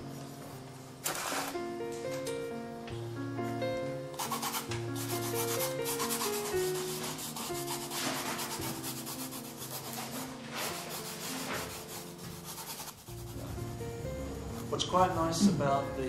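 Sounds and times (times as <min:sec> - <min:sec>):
charcoal scrubbing on canvas: 0:04.2 - 0:13.4.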